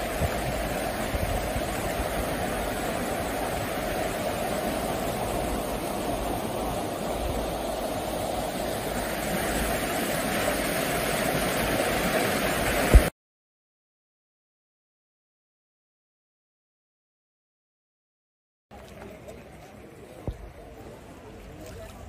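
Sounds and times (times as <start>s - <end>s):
river rushing over rocks: 0.0s - 13.1s
short sharp thump: 12.9s - 13.1s.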